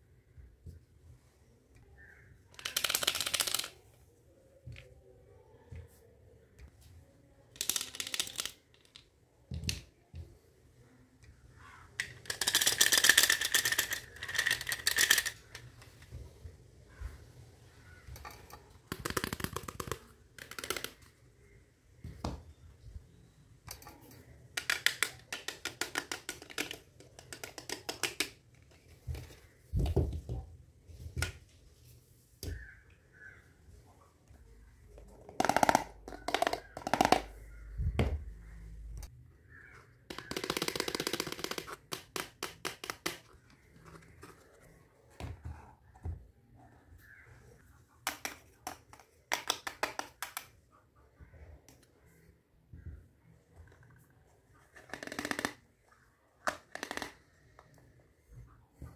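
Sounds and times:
plastic toy pieces rustling and clicking: 2.5s - 3.9s, 7.5s - 9.1s, 12.0s - 16.2s, 23.7s - 29.4s, 40.1s - 44.7s.

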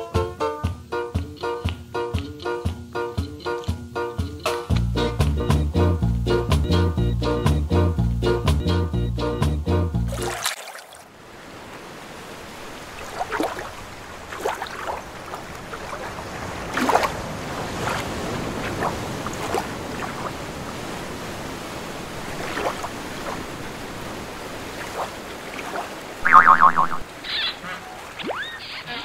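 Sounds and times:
ocean waves washing: 10.1s - 29.0s
waves breaking and splashing: 10.1s - 29.0s.

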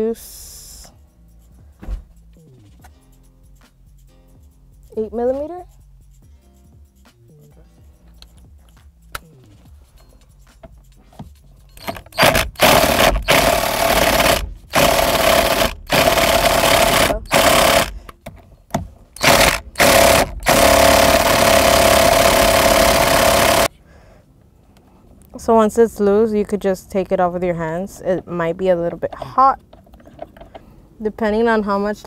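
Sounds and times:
impact wrench hammering: 11.8s - 18.0s, 18.7s - 23.7s.

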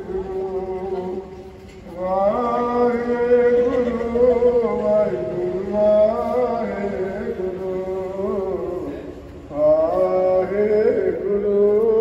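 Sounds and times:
man chanting into microphone: 0.0s - 12.0s.

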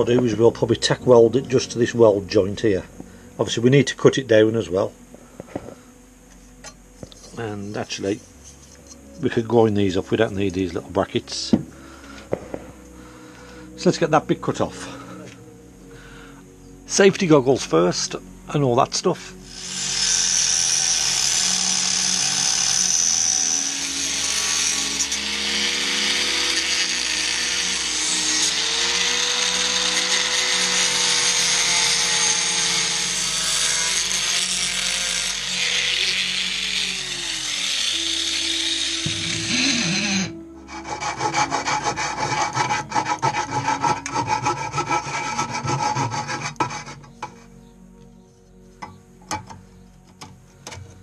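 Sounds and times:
angle grinder cutting metal: 18.8s - 47.2s.

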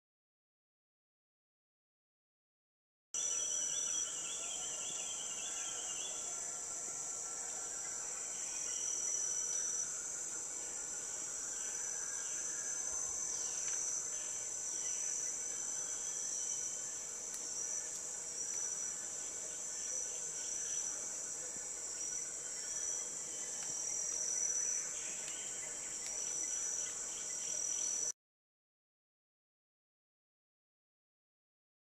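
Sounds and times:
insect shrill drone: 3.2s - 28.1s.

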